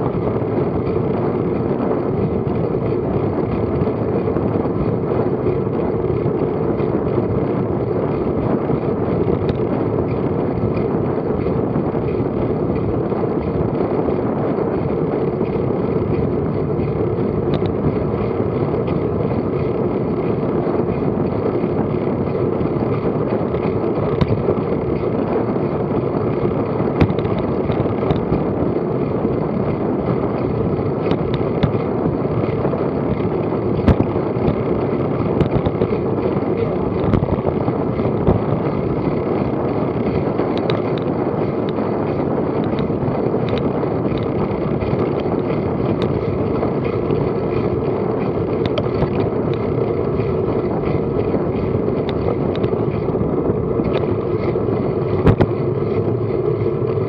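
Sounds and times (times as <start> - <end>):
bicycle tyre noise on road: 0.0 - 57.0
wind on microphone: 0.0 - 57.0
small knocks from road bumps: 17.4 - 17.8, 23.6 - 25.6, 26.3 - 28.5, 29.7 - 39.2, 40.3 - 56.2.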